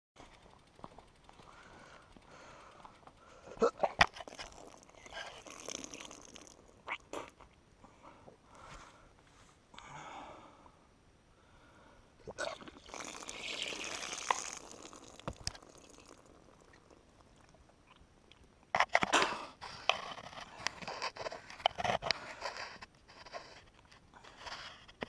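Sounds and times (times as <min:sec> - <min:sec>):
person retching and vomiting: 0:03.5 - 0:07.4, 0:12.2 - 0:18.0
person coughing and spitting: 0:03.6 - 0:06.2.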